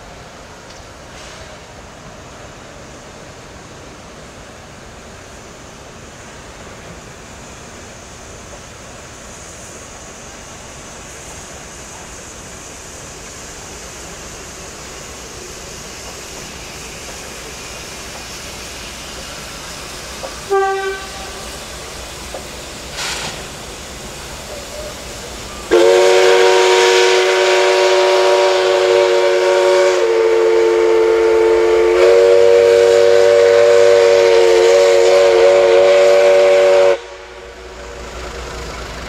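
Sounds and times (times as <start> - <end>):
passing train rumble: 0.0 - 39.0
steam locomotive chime whistle: 20.4 - 21.6, 24.5 - 37.6.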